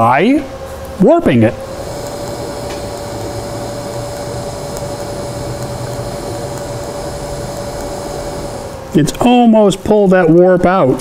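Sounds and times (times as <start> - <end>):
constant hum: 0.0 - 10.4
arc welding hiss: 1.5 - 9.4.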